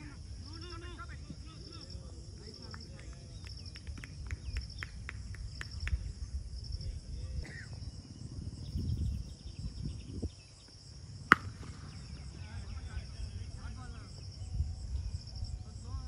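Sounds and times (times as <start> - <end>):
insects trilling: 0.0 - 16.0.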